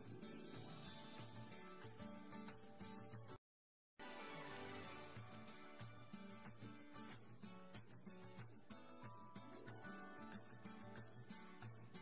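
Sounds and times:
song with steady beat: 4.0s - 12.0s.

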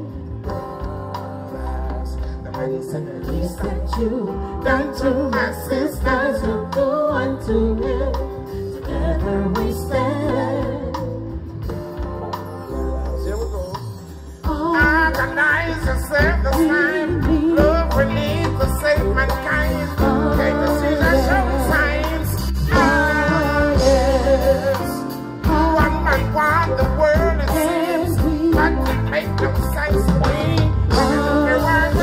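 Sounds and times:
man singing: 0.0s - 8.1s, 12.7s - 32.0s
live reggae band: 0.0s - 32.0s
heavy bass line: 14.5s - 32.0s.

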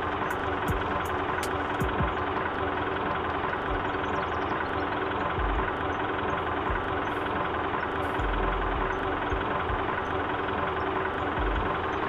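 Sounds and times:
engine idling: 0.0s - 12.0s
low thumps: 5.4s - 5.8s, 11.4s - 11.8s.

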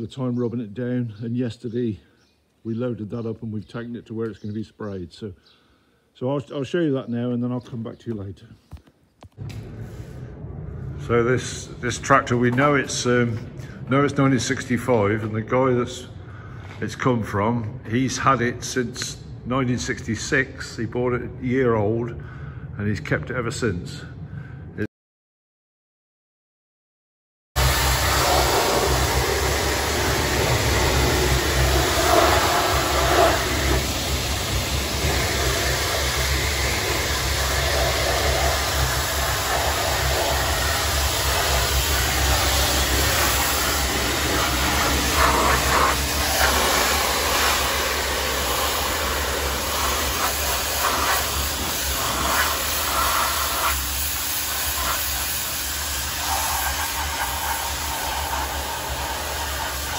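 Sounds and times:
steady low hum: 9.4s - 24.9s, 27.6s - 59.9s
pressure washer jet hissing: 27.6s - 59.9s.

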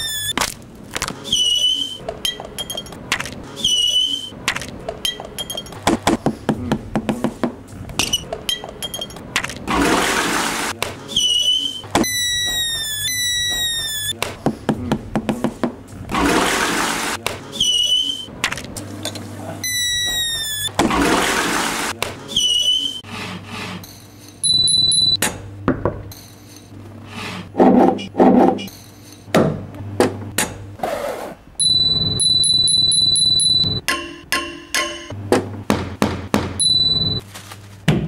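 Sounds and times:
balloon squeaking under fingers: 0.0s - 0.5s, 11.1s - 15.1s, 19.7s - 20.9s.

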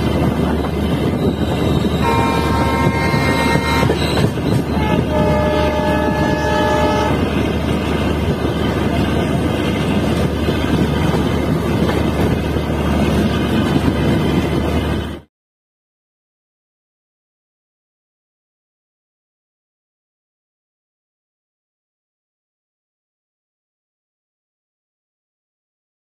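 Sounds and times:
train running rumble: 0.0s - 15.3s
diesel locomotive horn: 0.8s - 7.7s.

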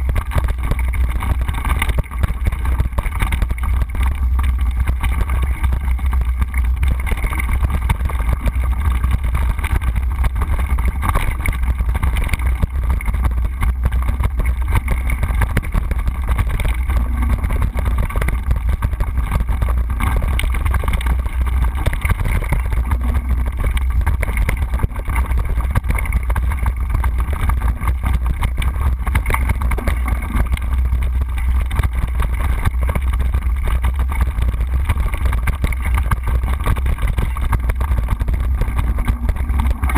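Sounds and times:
bike rattling over bumps: 0.0s - 39.9s.

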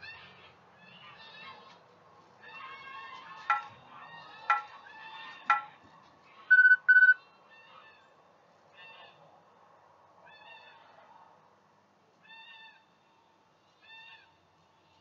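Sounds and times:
short electronic beeps: 6.5s - 7.2s
faint high calls: 6.5s - 7.8s.

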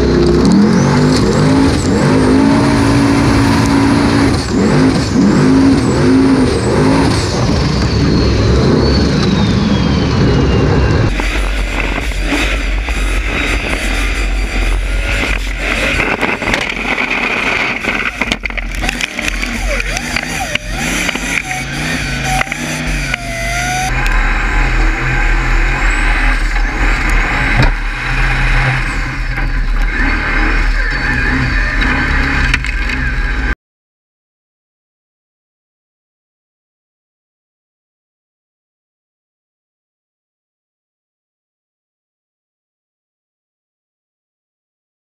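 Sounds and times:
spraying mud rush: 0.0s - 33.5s
buggy engine running hard: 0.0s - 33.6s.

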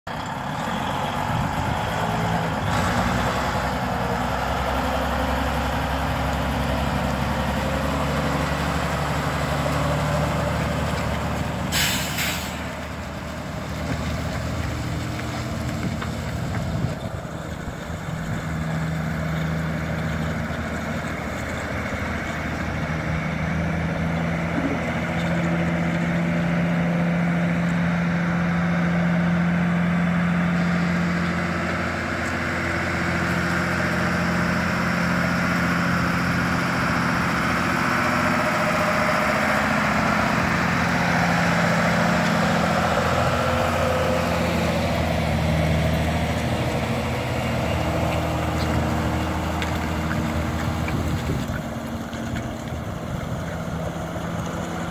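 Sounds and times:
dump truck diesel engine: 0.0s - 54.9s
loud hiss: 11.7s - 12.7s.

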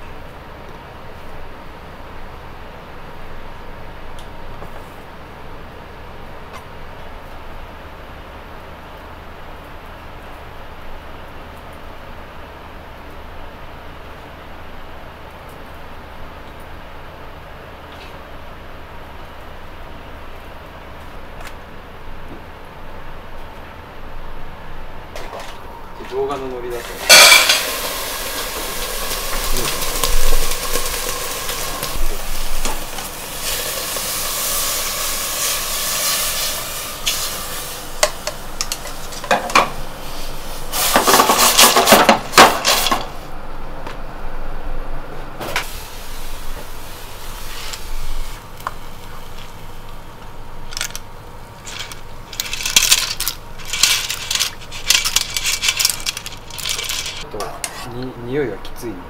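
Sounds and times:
clams cooking in saucepan: 26.6s - 43.3s, 45.6s - 57.3s
pots and pans clattering: 26.8s - 37.3s, 40.7s - 43.2s
clam shells rattling against metal: 27.0s - 28.2s, 50.7s - 51.0s, 51.6s - 57.2s.

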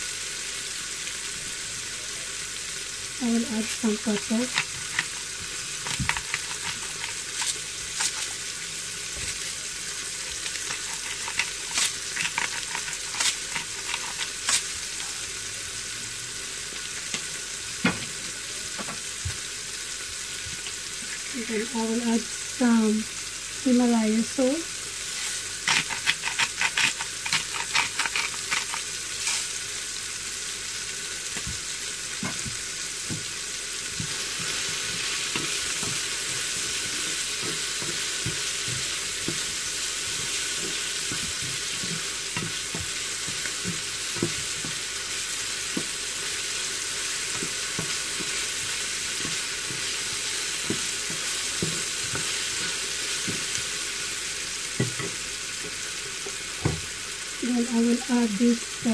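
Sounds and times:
food sizzling in a pan: 0.0s - 58.9s
stirring taps: 3.5s - 8.4s, 10.2s - 14.6s, 25.6s - 28.9s, 33.9s - 44.9s, 45.7s - 46.0s, 47.2s - 53.7s, 54.8s - 56.8s
salt grinder crunching: 4.5s - 8.4s, 10.3s - 14.7s, 25.2s - 29.5s.

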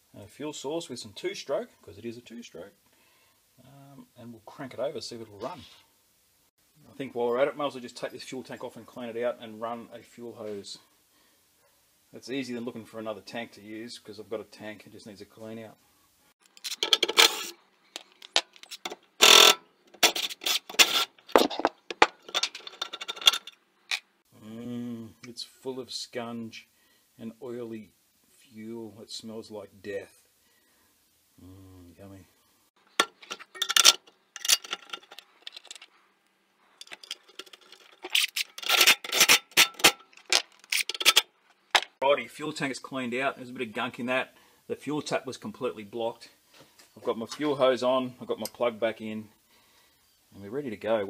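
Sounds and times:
hands scraping metal parts: 16.4s - 24.1s, 32.8s - 36.0s, 36.7s - 42.0s.

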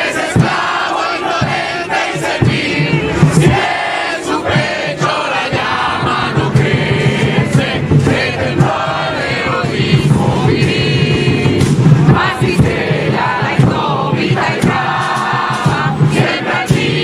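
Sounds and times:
crowd chanting slogans: 0.0s - 17.0s.

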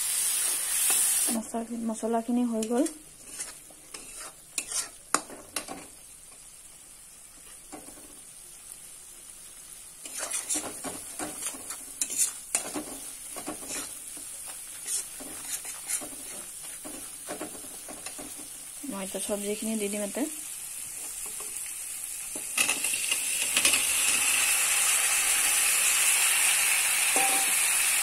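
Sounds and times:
onions sizzling in hot oil: 0.0s - 28.0s
spatula stirring and scraping: 2.4s - 6.4s, 10.0s - 19.3s.

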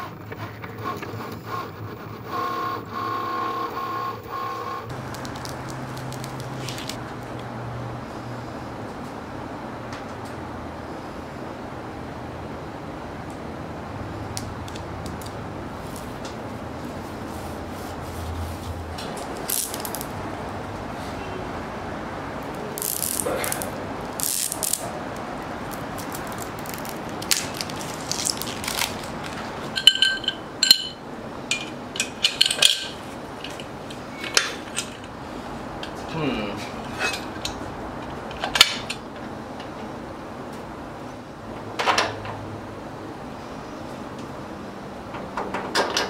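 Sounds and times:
metal parts clinking and clanking: 26.2s - 35.2s.

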